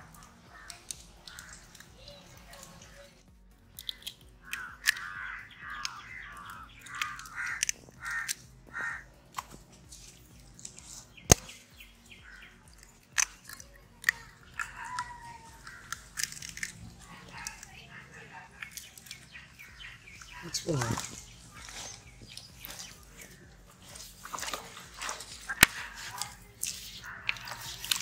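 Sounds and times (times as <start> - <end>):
bird cawing: 0.0 - 3.0, 3.8 - 9.2, 12.0 - 28.0
eggshells cracked on a steel pot: 3.8 - 8.4, 12.3 - 17.8, 18.6 - 19.4.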